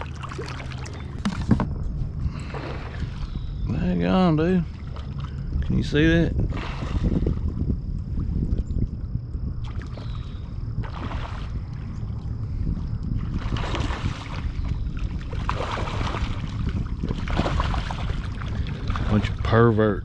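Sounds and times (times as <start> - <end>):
water splashing: 0.0 - 1.6, 2.4 - 3.4, 9.6 - 12.3, 13.2 - 19.6
wind buffeting microphone: 0.0 - 20.0.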